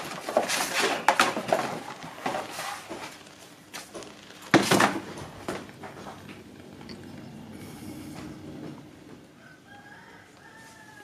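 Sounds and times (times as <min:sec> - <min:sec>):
hide and paper rustling on tiles: 0:00.0 - 0:06.2.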